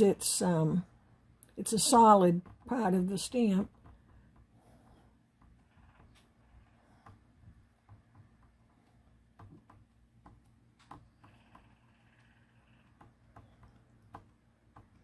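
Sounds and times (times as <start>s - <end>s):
ink pad tapping on stamps: 7.8s - 11.7s.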